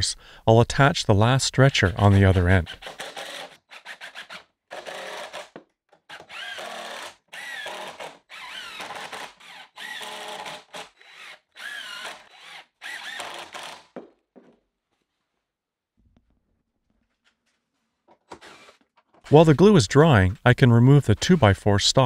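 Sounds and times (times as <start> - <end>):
impact driver driving screws: 2.0 - 14.0, 18.1 - 19.3.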